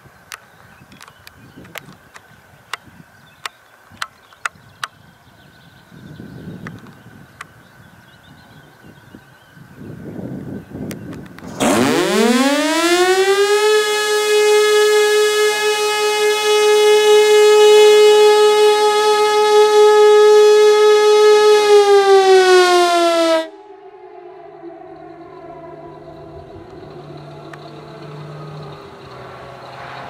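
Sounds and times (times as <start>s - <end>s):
pneumatic siren wailing: 11.4s - 29.5s.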